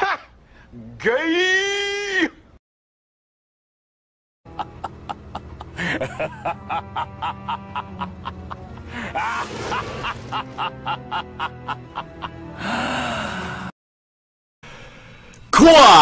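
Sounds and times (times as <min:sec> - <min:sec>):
villainous laugh: 0:04.5 - 0:12.8.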